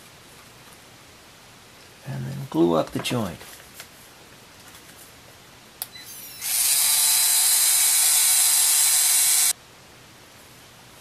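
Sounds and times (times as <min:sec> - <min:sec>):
pen motor and gears running: 0:06.3 - 0:09.5.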